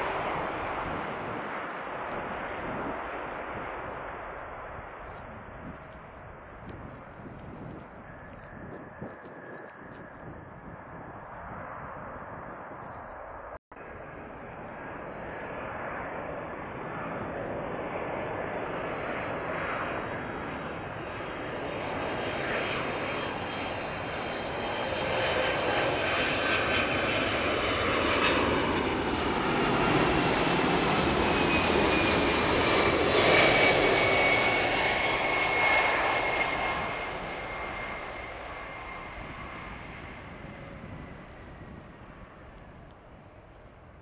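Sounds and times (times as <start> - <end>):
jet engines passing: 0.0 - 44.0.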